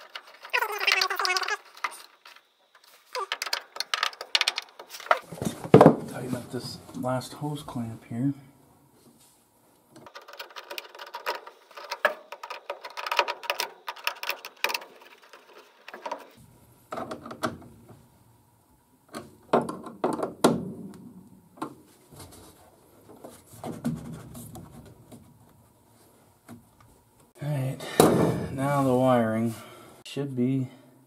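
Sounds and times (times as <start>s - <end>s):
knocks and rustling: 0.0s - 7.2s, 19.1s - 27.3s.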